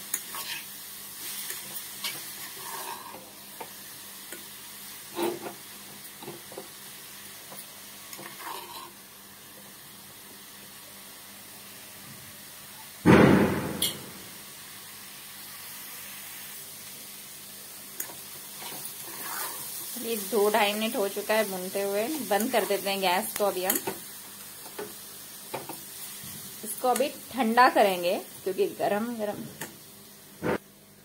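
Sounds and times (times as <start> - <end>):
vegetables sizzling in a saucepan: 0.0 - 13.1, 13.7 - 31.0
spoon scraping a pan: 0.1 - 3.3, 5.1 - 5.6, 8.1 - 9.0, 18.0 - 19.8.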